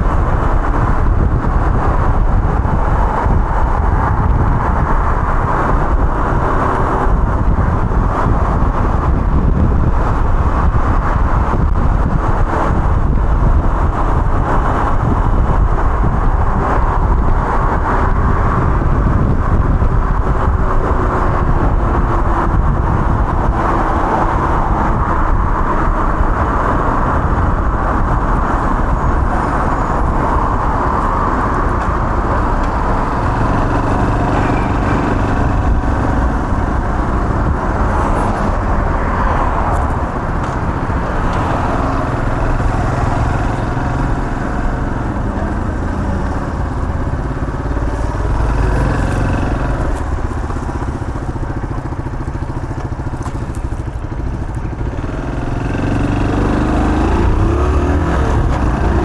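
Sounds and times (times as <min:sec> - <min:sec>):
road noise: 0:00.0 - 0:59.0
wind noise on microphone: 0:00.0 - 0:59.0
moped engine running: 0:39.8 - 0:59.0.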